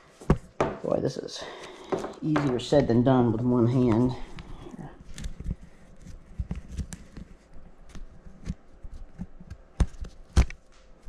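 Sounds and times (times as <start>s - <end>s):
rope rustling: 3.3s - 10.8s.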